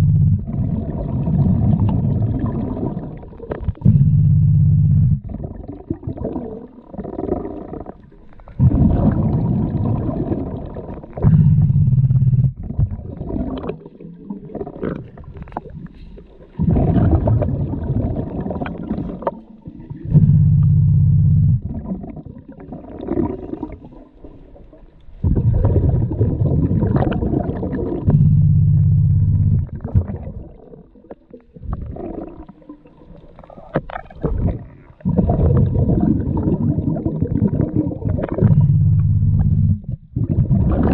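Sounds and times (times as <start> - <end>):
low bubbling exhale: 0.0 - 40.9
regulator inhale underwater: 15.8 - 17.1.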